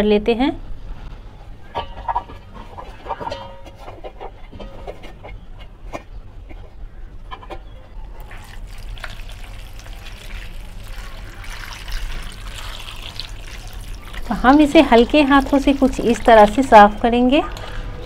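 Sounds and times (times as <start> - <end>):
water pouring into a steel bowl: 8.2 - 16.8.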